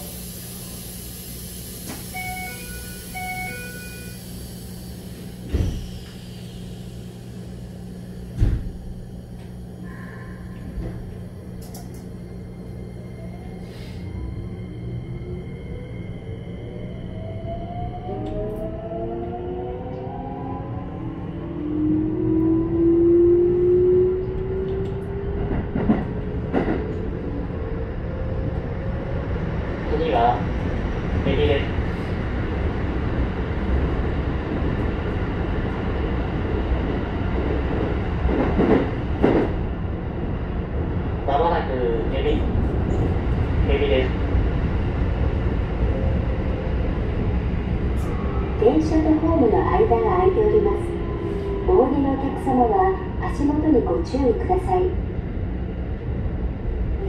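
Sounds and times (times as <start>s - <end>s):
wheels rumbling on rail: 0.0s - 57.0s
train door chime: 2.1s - 4.2s
loud thump: 8.4s - 8.8s.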